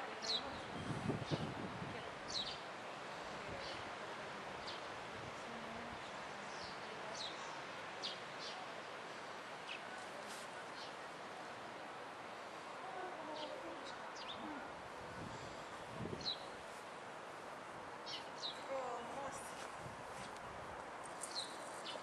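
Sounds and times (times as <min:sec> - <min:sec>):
outdoor background hiss: 0:00.0 - 0:22.0
small birds chirping: 0:00.2 - 0:02.7, 0:09.6 - 0:10.0, 0:13.3 - 0:14.5, 0:15.5 - 0:16.6, 0:18.0 - 0:19.6, 0:21.0 - 0:22.0.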